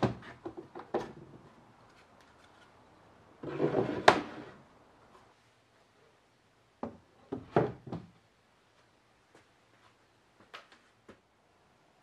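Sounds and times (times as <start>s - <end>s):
wood scraping slide: 3.4s - 4.6s.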